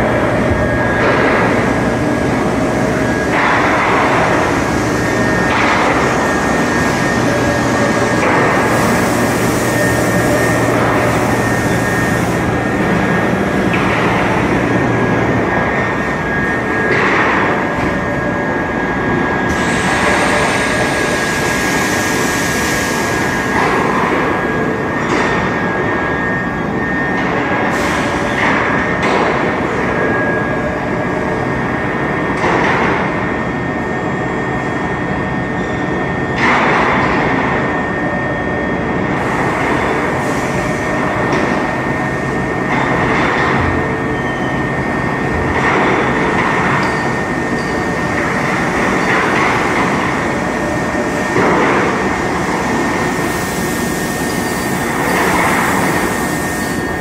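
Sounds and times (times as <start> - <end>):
machine rumble: 0.0 - 33.0
high machine whine: 0.0 - 57.0.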